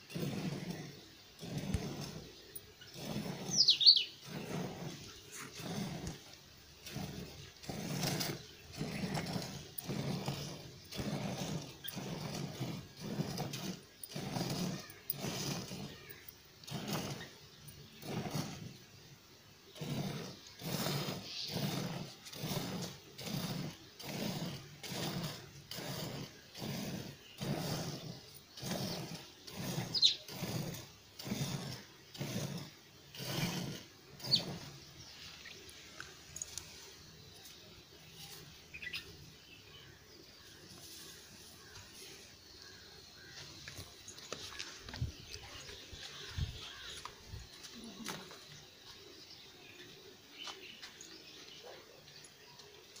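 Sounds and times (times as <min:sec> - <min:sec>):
milk squirting into steel pot: 0:00.0 - 0:19.0, 0:19.7 - 0:37.3.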